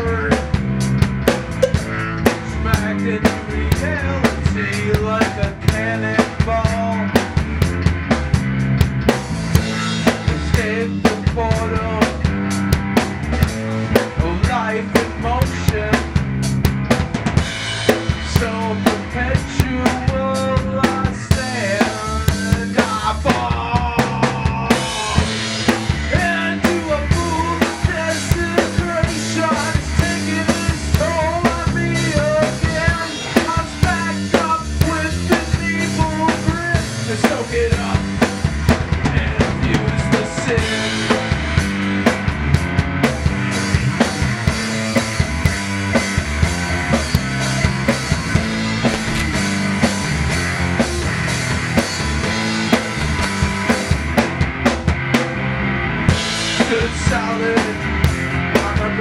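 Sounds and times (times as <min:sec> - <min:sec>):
drum kit beat: 0:00.0 - 0:59.0
rock band playing: 0:00.0 - 0:59.0
bending melody line: 0:01.4 - 0:03.7.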